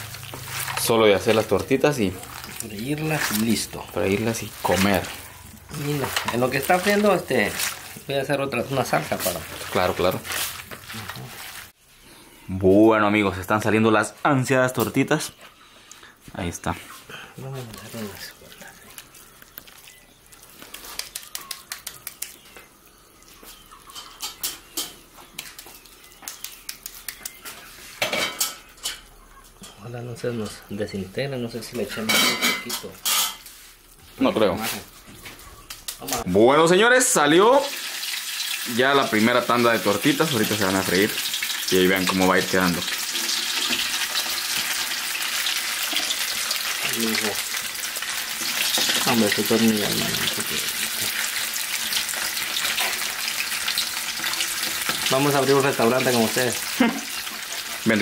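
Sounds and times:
hands slapping wet patty mixture: 0:00.0 - 0:08.0, 0:18.9 - 0:22.7, 0:25.2 - 0:27.7
patty sizzling in hot oil: 0:00.0 - 0:11.8, 0:37.3 - 0:58.0.

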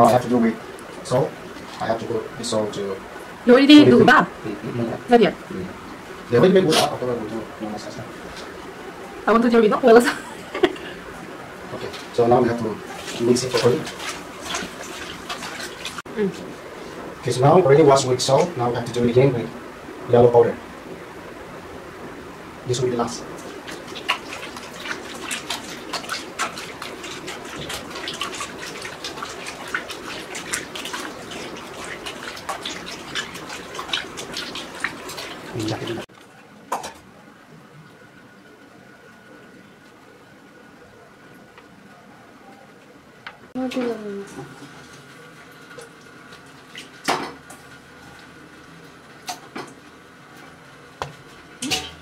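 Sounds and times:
wet squelching of kneaded meat: 0:23.3 - 0:36.0.

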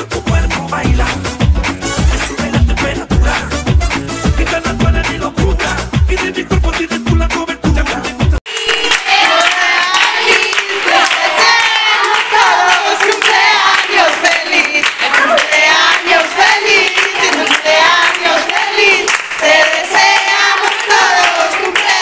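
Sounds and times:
group singing: 0:04.4 - 0:22.0
hand clapping: 0:08.4 - 0:22.0.

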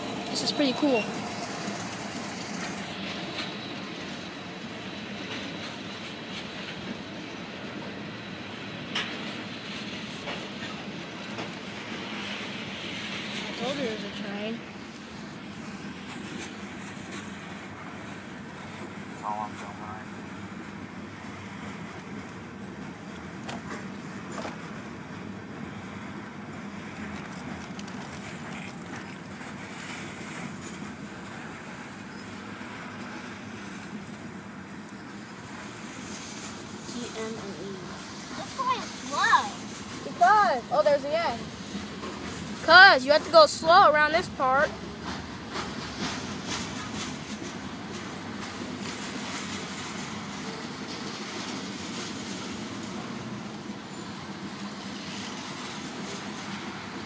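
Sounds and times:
train wheels rumbling on rails: 0:00.0 - 0:57.0
faint wheel clicks at rail joints: 0:26.2 - 0:31.4.

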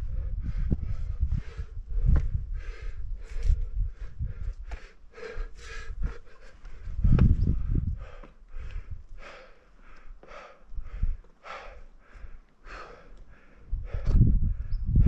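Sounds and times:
rumble buffeting microphone: 0:00.0 - 0:09.2, 0:13.7 - 0:15.0
person breathing hard: 0:00.0 - 0:15.0.

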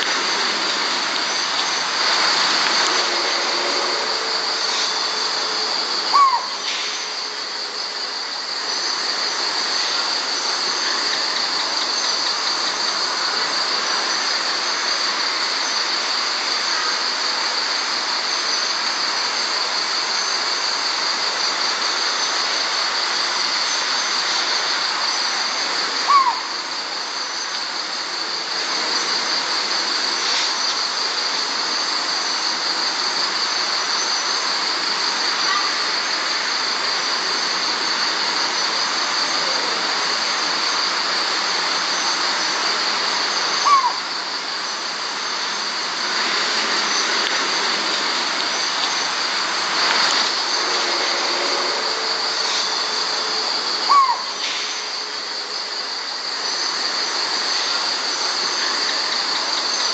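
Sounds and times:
crickets trilling: 0:00.0 - 0:59.9
owl single-note calls: 0:06.1 - 0:06.8, 0:26.0 - 0:26.6, 0:43.6 - 0:44.1, 0:53.8 - 0:54.4.

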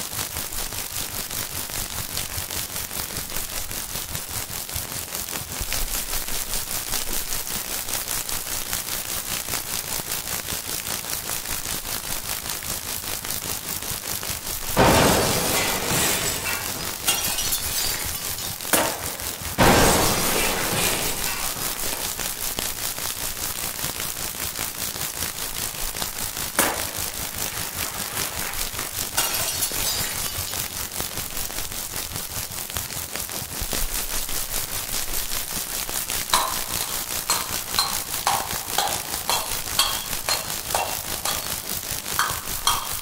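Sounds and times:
crackling clicks and hiss: 0:00.0 - 0:43.0
sudden crash-like hits: 0:14.7 - 0:22.4.

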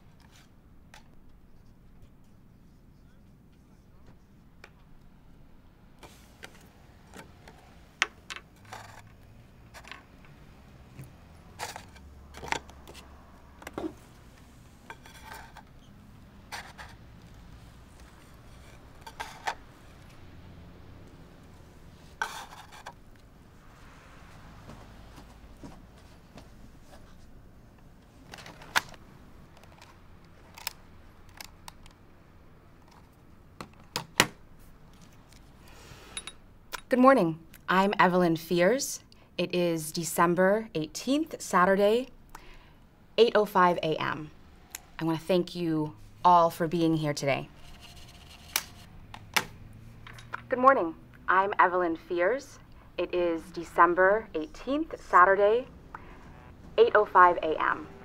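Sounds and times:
faint room hum: 0:00.0 - 0:58.0
paper rustling and folding: 0:47.6 - 0:48.9.

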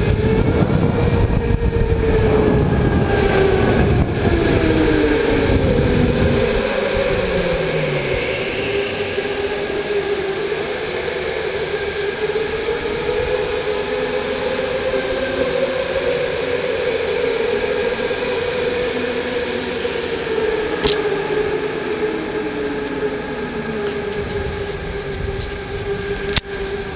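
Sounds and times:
steady rushing noise: 0:00.0 - 0:14.2, 0:15.9 - 0:26.9
electric motor whining: 0:11.9 - 0:26.9.

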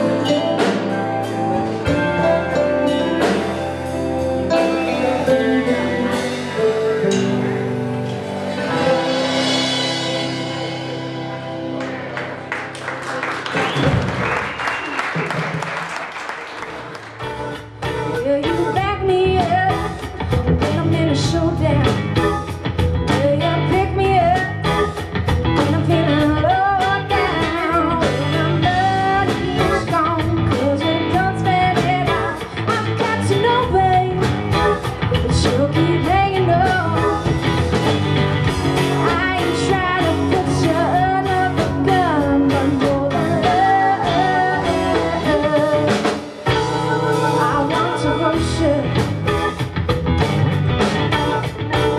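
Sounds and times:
guitars: 0:00.0 - 0:14.9, 0:16.6 - 0:51.9
steady drum beat: 0:16.7 - 0:51.9
woman singing lead: 0:17.3 - 0:49.6, 0:50.8 - 0:51.9.

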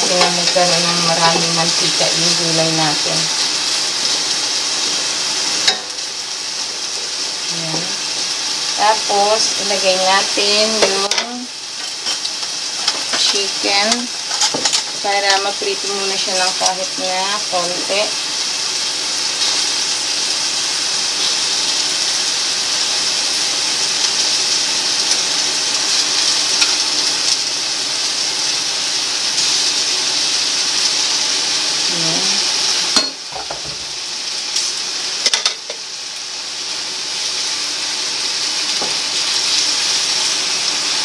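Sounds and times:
vegetables sizzling in oil: 0:00.0 - 0:41.0.

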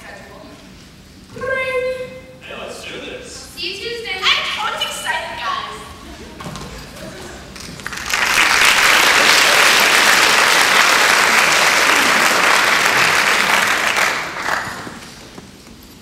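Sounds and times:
audience applauding: 0:07.4 - 0:15.4.

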